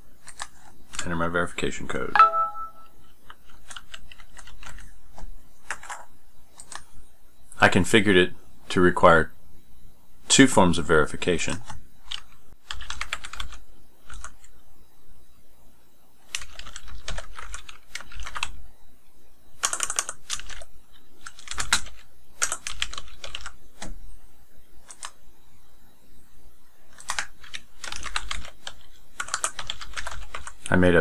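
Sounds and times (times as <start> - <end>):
keyboard typing: 5.7 - 6.0, 12.1 - 14.5, 16.3 - 18.5, 19.6 - 23.9, 24.8 - 25.2, 26.9 - 30.7.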